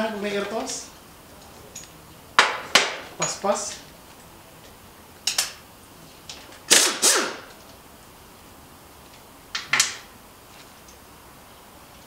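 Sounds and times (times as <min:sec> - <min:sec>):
pneumatic air tool hissing bursts: 0:06.7 - 0:07.5.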